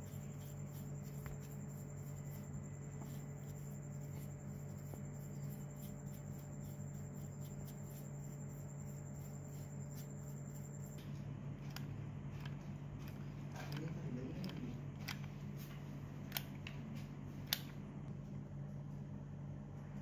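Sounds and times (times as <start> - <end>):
brush scrubbing: 0.0 - 11.0
steady low hum: 0.0 - 20.0.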